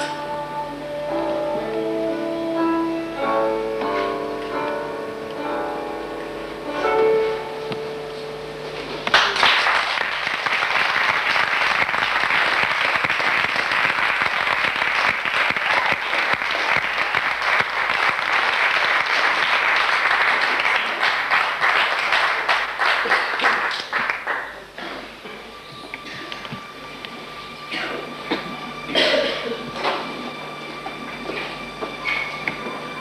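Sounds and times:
audience applauding: 9.0 - 25.2.

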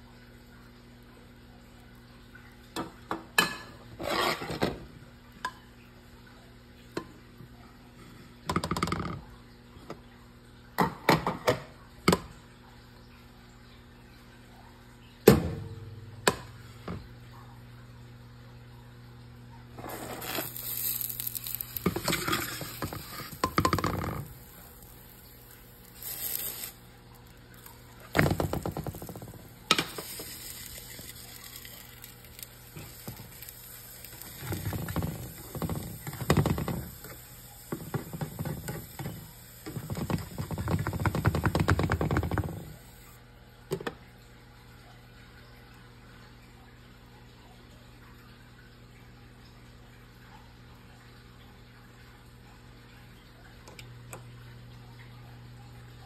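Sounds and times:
spatula scraping a frying pan: 4.0 - 4.8, 19.8 - 24.9, 26.0 - 26.8.

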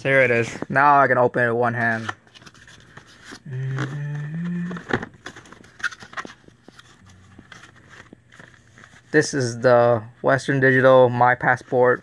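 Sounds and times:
man humming: 3.4 - 5.0.

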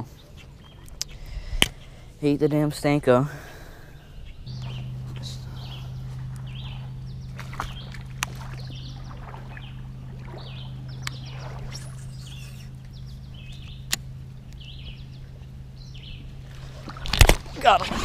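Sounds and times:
low motor hum: 0.0 - 18.0
short bird chirps: 10.4 - 13.9
sharp clicks: 11.0 - 11.3.

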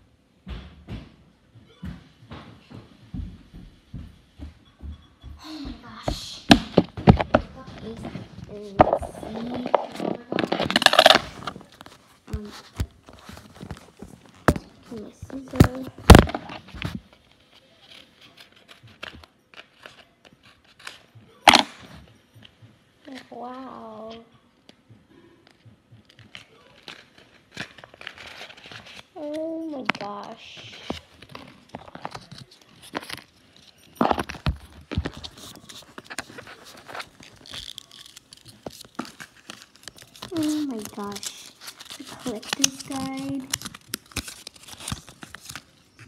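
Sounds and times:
paper and plastic crinkling: 6.5 - 22.0, 25.4 - 46.0
handling noise clicks and rustles: 6.7 - 22.5, 25.5 - 46.0.

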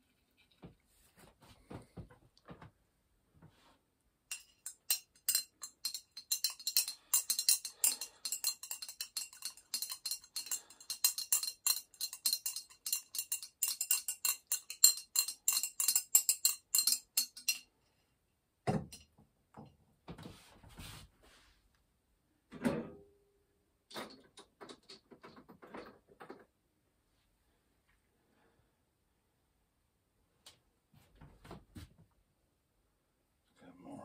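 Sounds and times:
pestle clinking in a mortar: 4.3 - 17.6.

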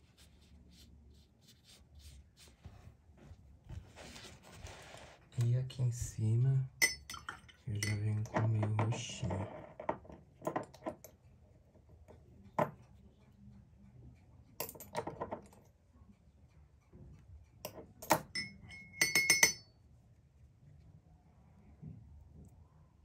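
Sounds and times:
brush clinking against cup: 6.8 - 9.4, 17.6 - 19.8.

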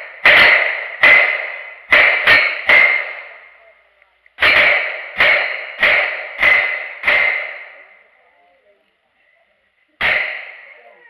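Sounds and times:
steel targets ringing: 0.0 - 3.6, 4.4 - 7.9, 10.0 - 10.9.

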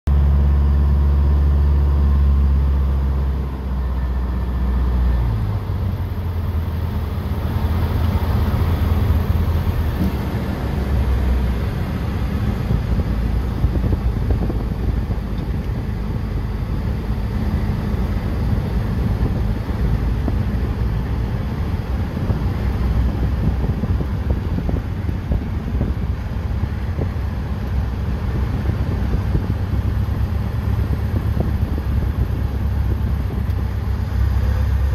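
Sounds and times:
small plane engine and propeller: 0.1 - 34.9.

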